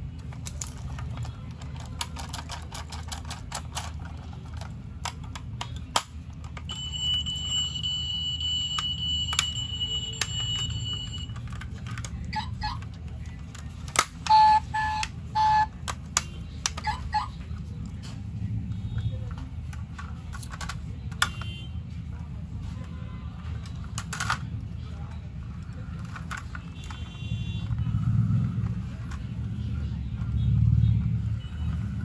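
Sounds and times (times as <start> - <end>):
toy car clicks and taps: 0.2 - 7.2, 8.7 - 17.3, 19.0 - 21.5, 23.6 - 24.5.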